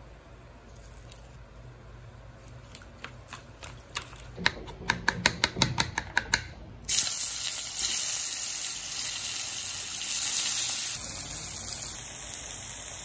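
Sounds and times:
knife chopping on a plastic board: 3.3s - 6.5s
oil sizzling: 6.8s - 13.0s.

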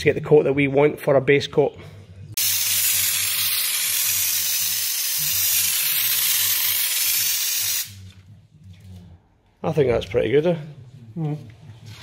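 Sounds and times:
paint spray gun hissing: 2.4s - 8.0s.

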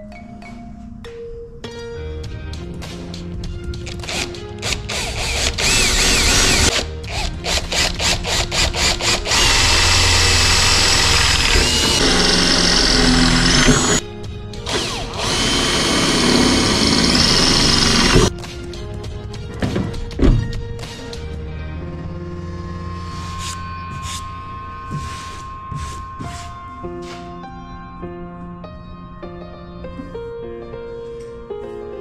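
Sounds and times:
cordless drill boring: 4.0s - 14.0s, 14.7s - 18.3s.

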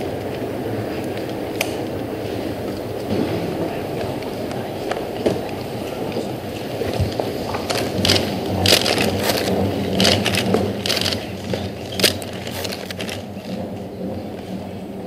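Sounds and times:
dull background rumble: 0.0s - 15.0s
steady low hum: 0.0s - 15.0s
sharp clicks and rustles: 4.0s - 14.6s.

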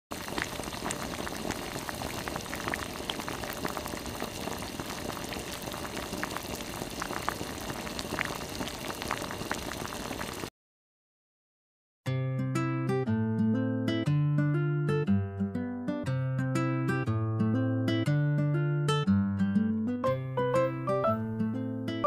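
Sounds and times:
broth boiling and bubbling: 0.1s - 10.5s.

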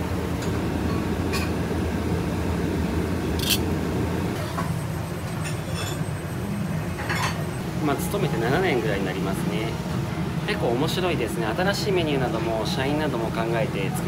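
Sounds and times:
kitchen low rumble: 0.0s - 14.0s
utensils and dishes clinking: 3.4s - 3.7s, 4.4s - 6.2s, 7.0s - 7.5s.

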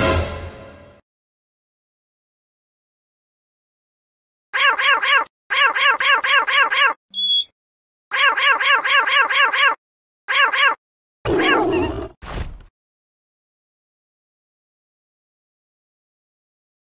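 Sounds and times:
cartoon babble voice: 4.6s - 7.0s, 8.1s - 10.8s.

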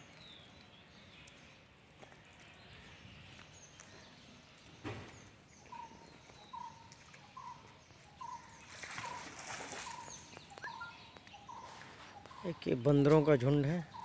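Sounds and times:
small birds chirping: 0.0s - 14.0s
monkeys splashing in water: 6.5s - 10.8s.

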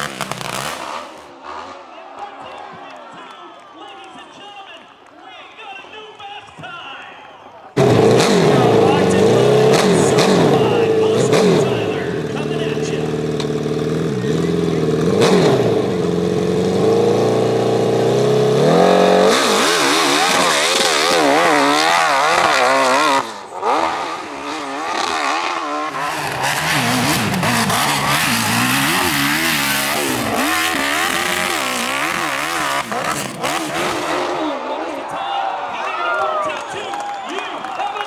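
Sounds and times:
motorcycle engine revving: 0.0s - 1.9s, 7.8s - 34.7s.

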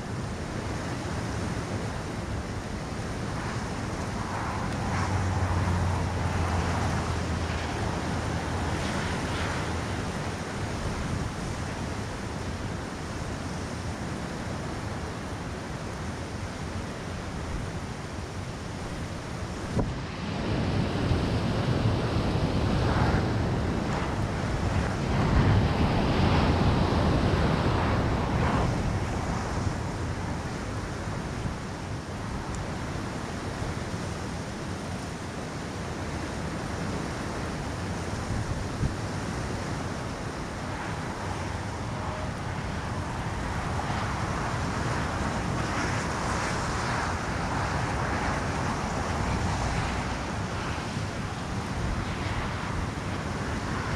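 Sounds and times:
wind blowing over microphone: 0.0s - 53.9s.

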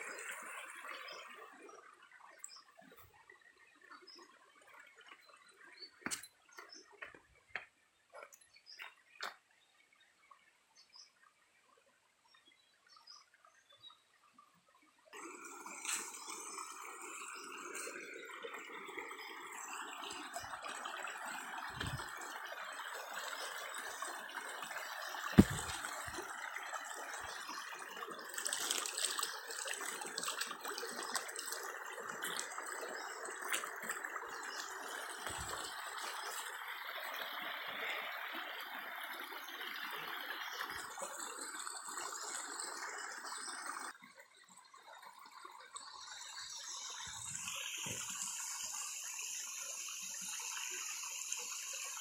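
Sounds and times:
stream rushing over rocks: 20.2s - 39.0s.

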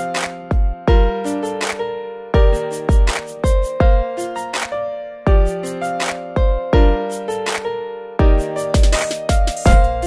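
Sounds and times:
held keyboard notes: 0.0s - 10.0s
heavy bass drum hits: 9.7s - 10.0s.

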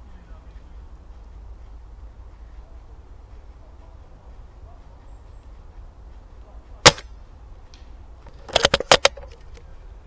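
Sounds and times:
airsoft rifle shot: 6.8s - 7.1s
sharp clicks and knocks: 7.7s - 9.6s.

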